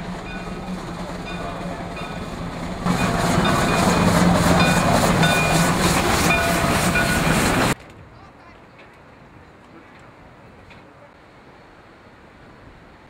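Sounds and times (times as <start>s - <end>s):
regular pulsing: 0.0s - 7.8s
steam locomotive hissing: 0.0s - 7.8s.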